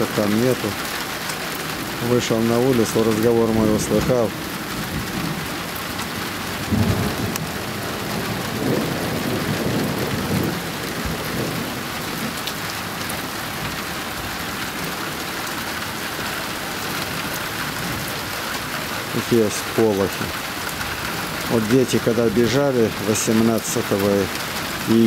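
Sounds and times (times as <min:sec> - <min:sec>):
steady rain falling: 0:00.0 - 0:25.0
thunder rumbling: 0:03.4 - 0:13.8.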